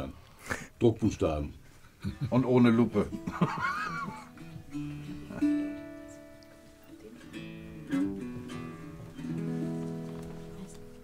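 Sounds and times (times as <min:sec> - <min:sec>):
acoustic guitar chords strummed: 0:02.9 - 0:11.0.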